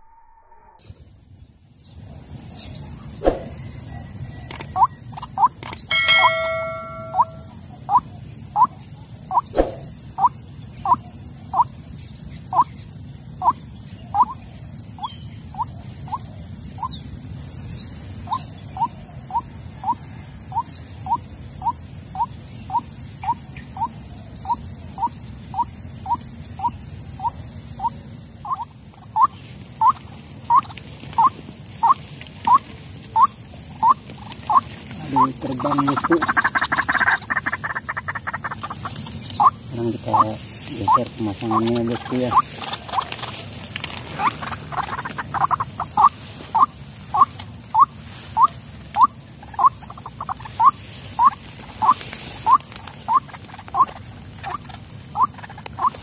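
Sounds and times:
bird calling short rising notes: 5.9 - 7.5
steady high whine: 5.9 - 7.7.

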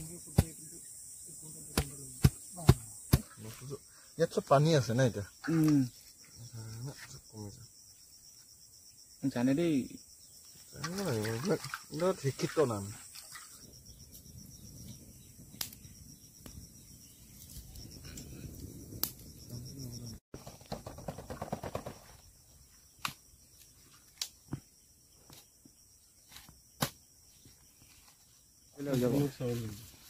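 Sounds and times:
insects chirping: 0.0 - 30.0
wood fire crackling: 15.0 - 19.6.

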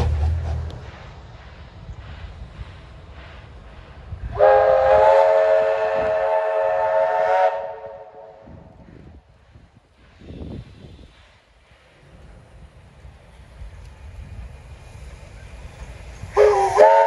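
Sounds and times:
low rumble of train: 0.0 - 17.0
steam locomotive whistle blast: 4.3 - 8.5, 16.3 - 17.0.

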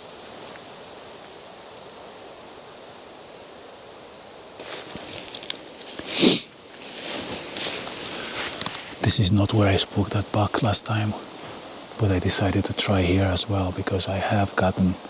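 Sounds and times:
rustling and brushing: 4.5 - 12.4
steady rushing background noise: 4.5 - 15.0.

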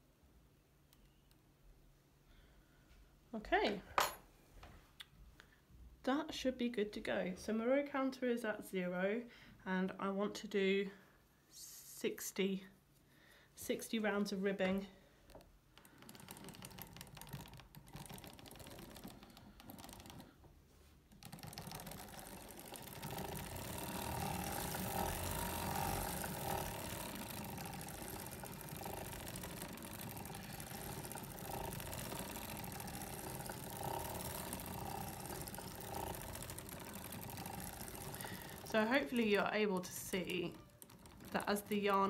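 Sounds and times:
sock machine clicking: 15.3 - 20.5, 21.1 - 42.0.

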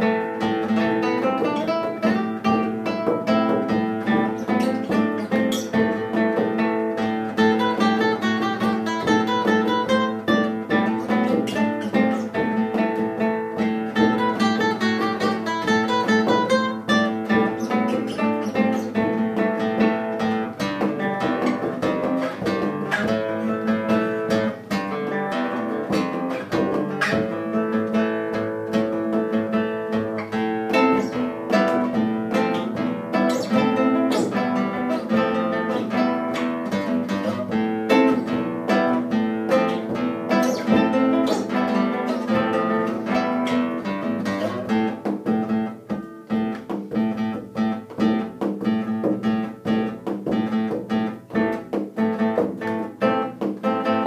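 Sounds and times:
frame drum beaten with a stick: 0.0 - 29.2
classical guitar playing chords: 0.0 - 54.0.

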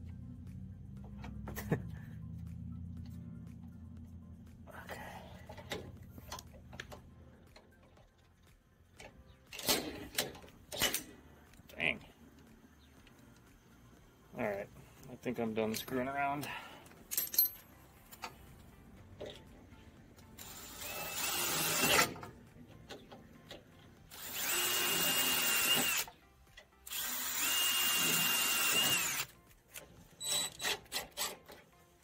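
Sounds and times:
cordless drill boring into sheet metal: 20.4 - 22.2, 24.1 - 26.1, 26.8 - 29.3.

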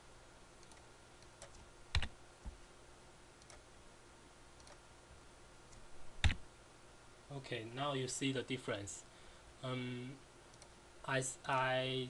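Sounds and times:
computer mouse clicking: 0.6 - 2.1, 3.4 - 3.6, 4.6 - 4.8, 10.5 - 10.8.

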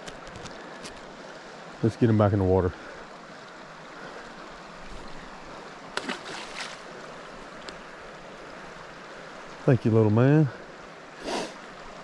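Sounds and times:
creek water running: 0.0 - 12.0
fish splashing into water: 5.9 - 6.9.

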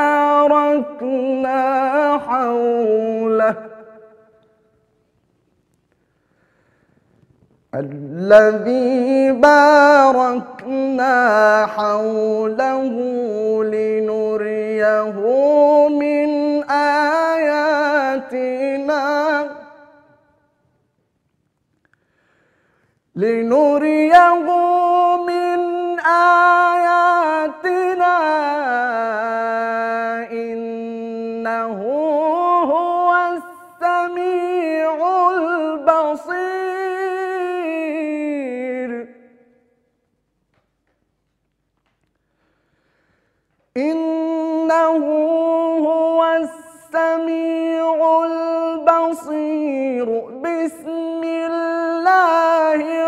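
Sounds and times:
man chanting melodically: 0.0 - 4.4, 7.8 - 20.2, 23.2 - 39.4, 43.7 - 53.0.

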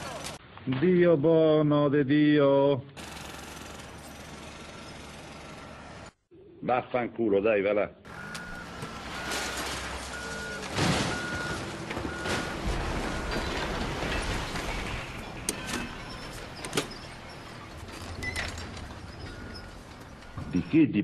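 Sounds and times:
construction machinery running: 3.0 - 6.2, 8.1 - 20.8
reversing alarm beeping: 8.1 - 14.3, 14.9 - 20.8
loud clanks and bangs: 8.9 - 20.6.

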